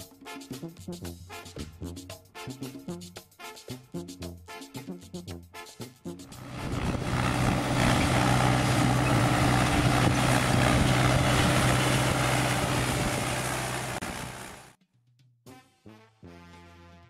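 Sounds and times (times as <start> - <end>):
tractor diesel engine: 6.3 - 14.7.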